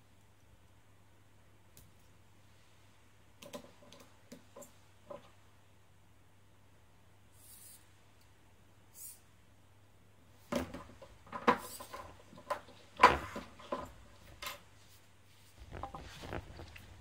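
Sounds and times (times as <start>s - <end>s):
soft rustling and handling: 10.8s - 17.0s.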